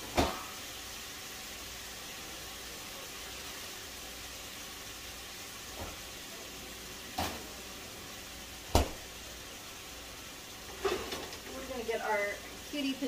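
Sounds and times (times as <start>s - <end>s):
sharp kitchen knocks: 0.0s - 0.5s, 8.7s - 9.0s
food sizzling in a frying pan: 0.0s - 13.0s.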